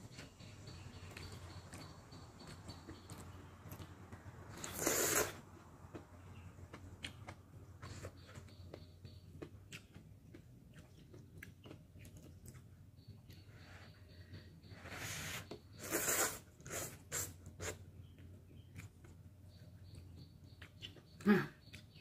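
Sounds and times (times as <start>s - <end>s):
wet chewing clicks: 0.1s - 13.6s, 15.7s - 22.0s
loud noodle slurp: 4.6s - 5.4s, 15.1s - 17.8s.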